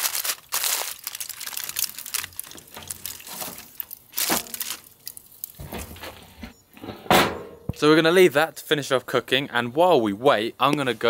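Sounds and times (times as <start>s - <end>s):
aluminium foil crinkling: 0.0s - 6.1s.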